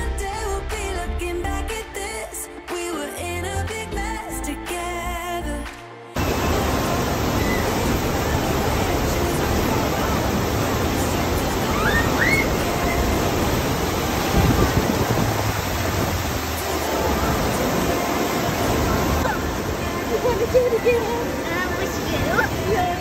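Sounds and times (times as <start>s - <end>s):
water rushing into pool: 6.2s - 23.0s.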